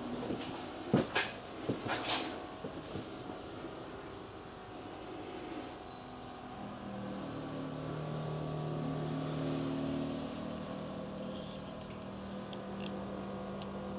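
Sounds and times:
low engine hum: 0:00.0 - 0:13.9.

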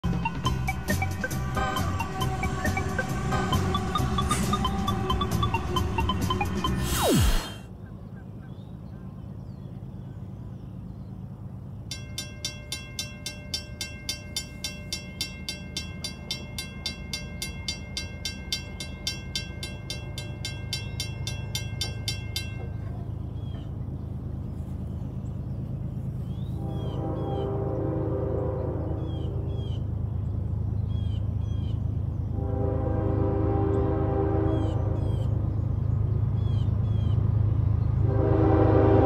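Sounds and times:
crossing warning bell ringing: 0:00.0 - 0:06.8, 0:11.7 - 0:23.9
low steady rumble: 0:01.2 - 0:39.0.

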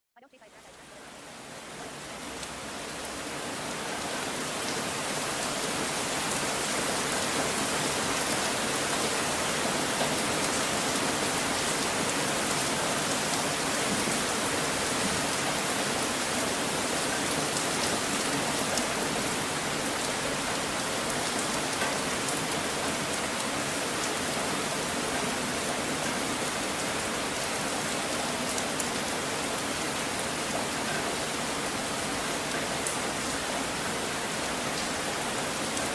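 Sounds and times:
steady rain hiss: 0:00.2 - 0:35.9
faint rain drop ticks: 0:01.8 - 0:03.2.

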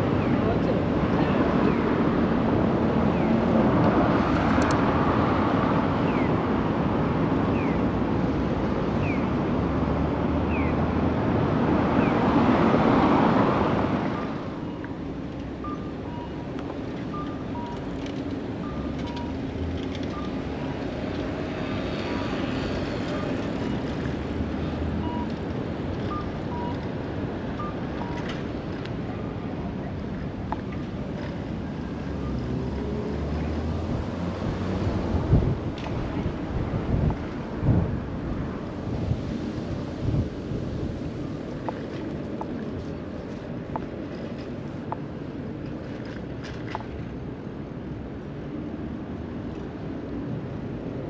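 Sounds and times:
bicycle wind and road noise: 0:00.0 - 0:51.0
distant traffic: 0:00.0 - 0:51.0
pedestrian crossing signal chirping: 0:14.1 - 0:20.8, 0:24.6 - 0:25.4, 0:26.0 - 0:28.3.

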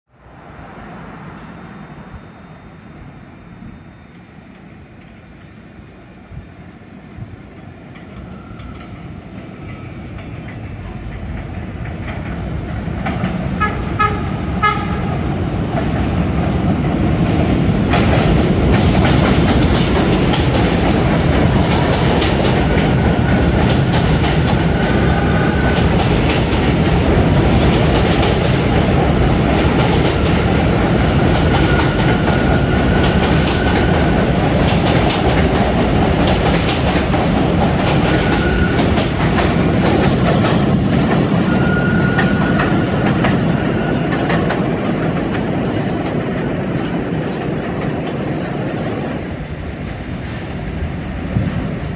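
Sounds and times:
subway train rumbling past: 0:00.1 - 0:51.9
train horn blasts: 0:13.6 - 0:15.1, 0:41.5 - 0:42.8.

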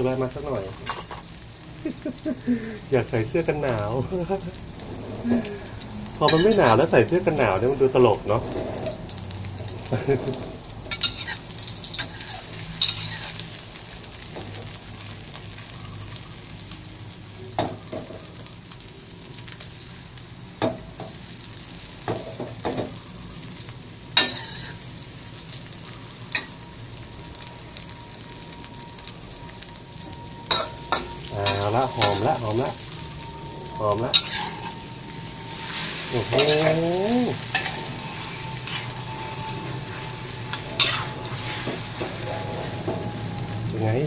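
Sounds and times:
omelette sizzling in a wok: 0:00.0 - 0:44.0
metal spatula scraping a pan: 0:06.2 - 0:06.9, 0:08.3 - 0:09.0, 0:09.8 - 0:13.6, 0:24.1 - 0:25.0, 0:30.4 - 0:43.5.

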